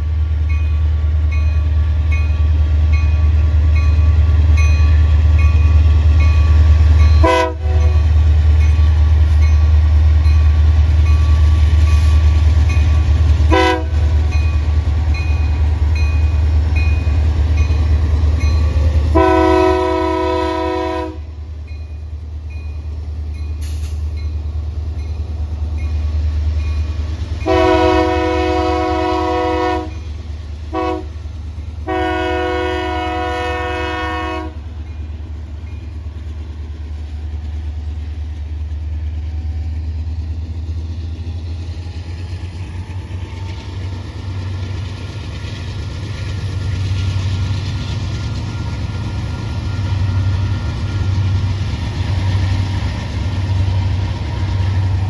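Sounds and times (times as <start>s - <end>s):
diesel locomotives rumbling: 0.0s - 55.0s
train air horn: 7.2s - 8.0s, 13.5s - 14.1s, 19.1s - 21.4s, 27.4s - 30.0s, 30.7s - 31.2s, 31.8s - 34.6s.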